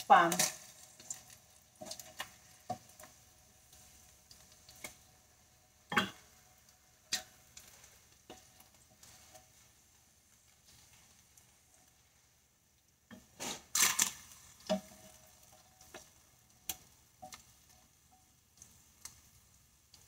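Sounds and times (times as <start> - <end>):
utensils scraping frying pan: 13.1 - 16.0.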